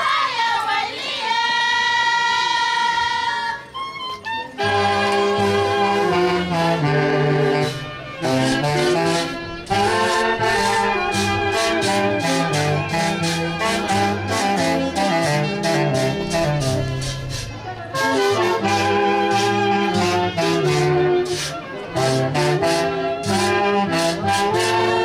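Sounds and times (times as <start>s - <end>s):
brass band dance tune: 4.5s - 25.0s.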